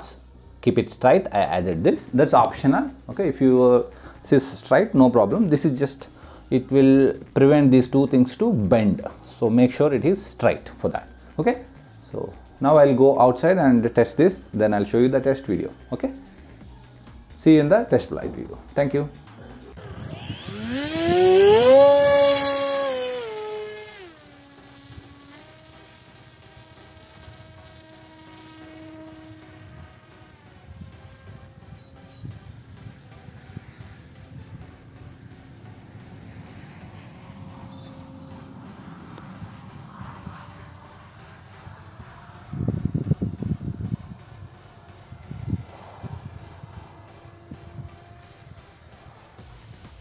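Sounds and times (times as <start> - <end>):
model plane electric motor hum: 19.5 - 50.0
insects chirping: 19.8 - 50.0.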